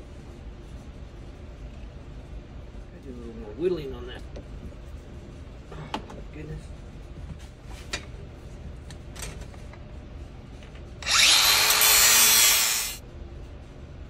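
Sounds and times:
angle grinder whining and grinding: 11.0s - 13.0s.

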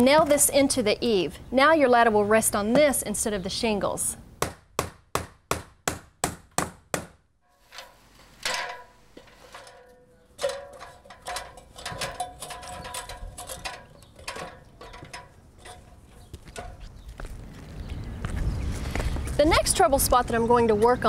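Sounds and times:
hammer driving a nail: 4.4s - 7.2s
metal ladder clanking: 7.5s - 16.9s.

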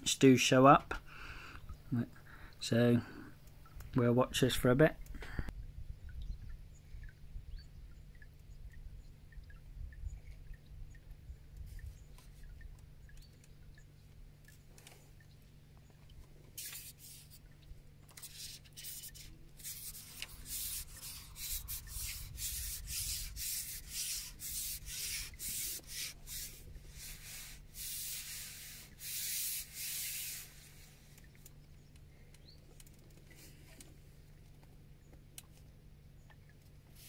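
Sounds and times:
rubbing and scraping strokes: 16.4s - 31.5s.

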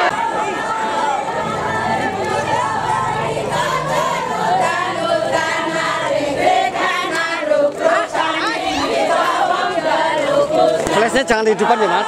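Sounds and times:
crowd singing a chant: 0.0s - 12.0s.

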